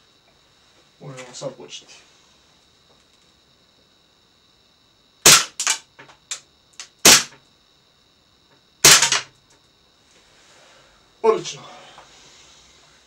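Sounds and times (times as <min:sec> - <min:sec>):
airsoft pistol shots: 0:05.2 - 0:05.8, 0:07.0 - 0:07.4, 0:08.8 - 0:09.3.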